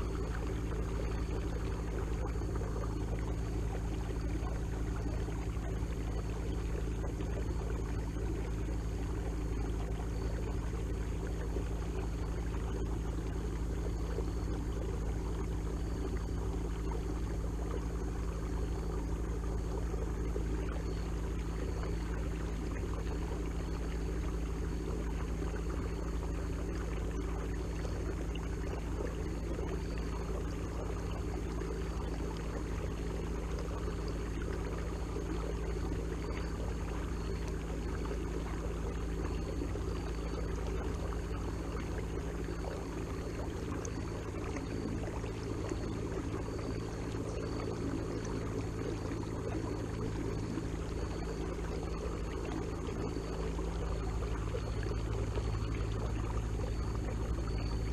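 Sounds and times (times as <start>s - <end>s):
water washing along hull: 48.7s - 57.9s.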